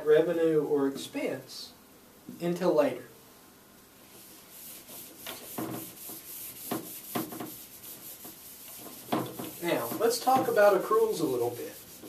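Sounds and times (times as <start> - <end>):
eraser wiping a whiteboard: 4.1 - 12.0.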